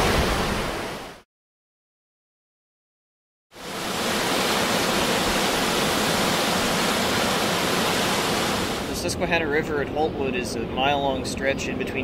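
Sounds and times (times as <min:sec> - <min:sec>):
river water rushing: 0:03.6 - 0:09.0.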